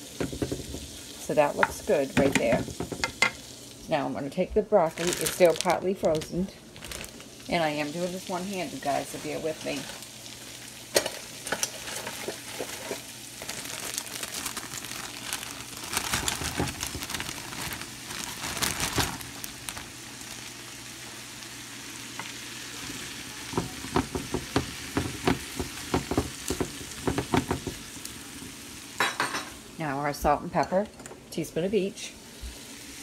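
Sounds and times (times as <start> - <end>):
butter sizzling in a frying pan: 0.0 - 30.7, 31.4 - 33.0
wooden spoon scraping a pan: 11.0 - 13.1.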